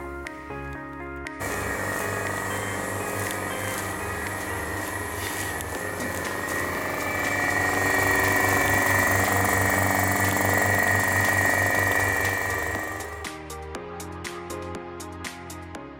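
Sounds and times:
vacuum pump running: 1.4s - 13.3s.

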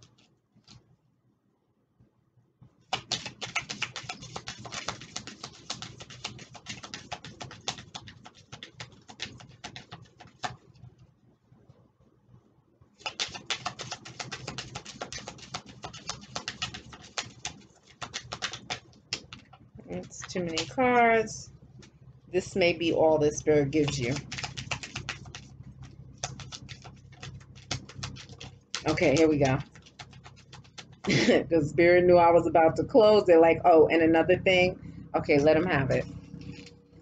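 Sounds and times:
cards being shuffled: 2.9s - 10.6s, 13.0s - 21.0s, 23.8s - 31.3s, 36.4s - 36.7s.

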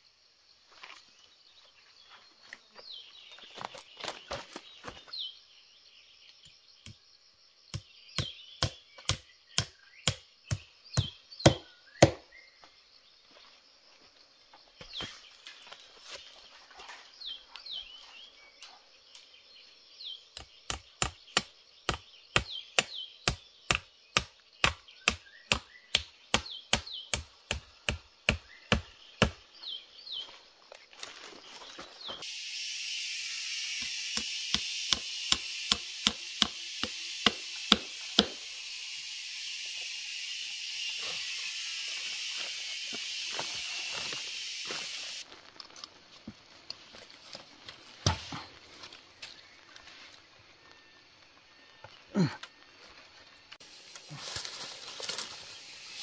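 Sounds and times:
small birds chirping: 0.6s - 32.3s
chopping blows: 8.2s - 12.2s, 33.8s - 38.5s.

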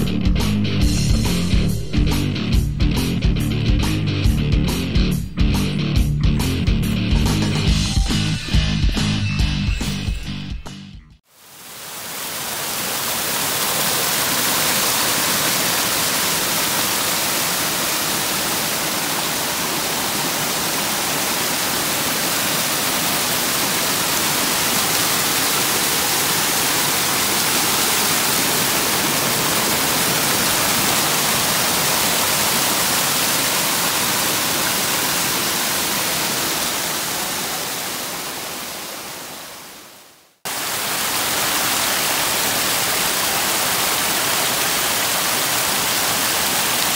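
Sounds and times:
waterfall pouring over rocks: 11.3s - 46.9s.

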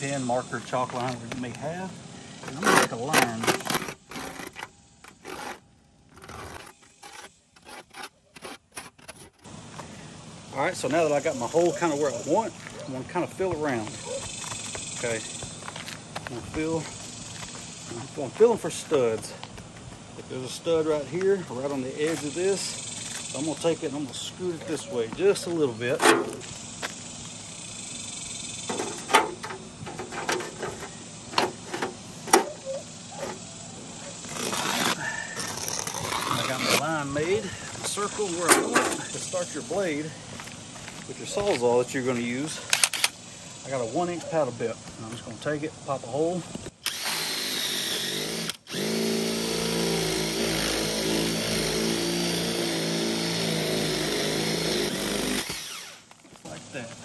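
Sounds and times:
knocks and scrapes on shingles: 2.4s - 9.5s, 28.7s - 32.6s
cordless drill boring shingles: 46.8s - 56.2s.

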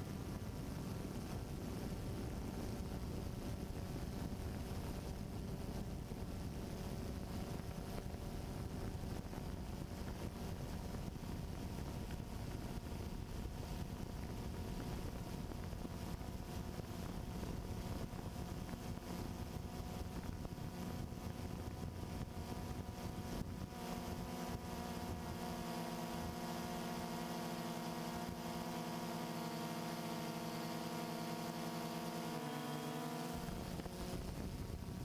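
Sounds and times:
steady rushing noise: 0.0s - 35.0s
motor humming: 14.1s - 35.0s.

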